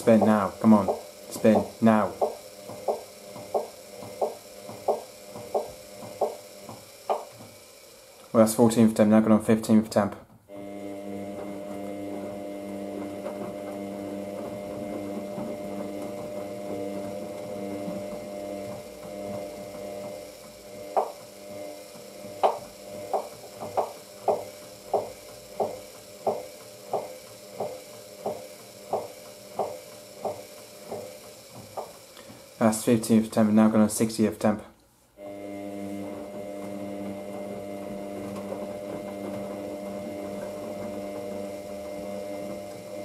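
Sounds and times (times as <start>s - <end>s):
washing machine drum knocking: 0.0s - 7.6s, 12.8s - 20.2s, 20.8s - 21.2s, 22.2s - 32.4s
washing machine motor humming: 0.0s - 43.0s.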